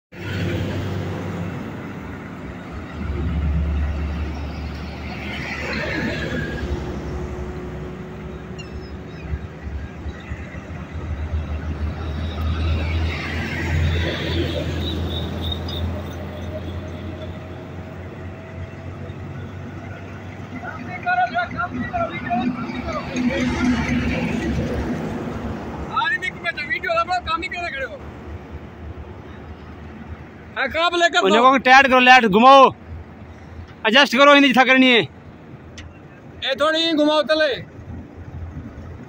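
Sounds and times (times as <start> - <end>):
heavy vehicles passing: 0.1 - 39.0
traffic engine rumble: 0.1 - 39.0.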